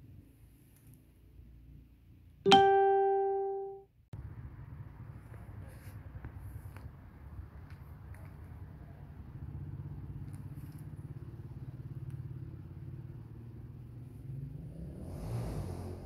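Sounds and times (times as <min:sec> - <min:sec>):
vehicle engine rumbling: 0:04.2 - 0:16.0.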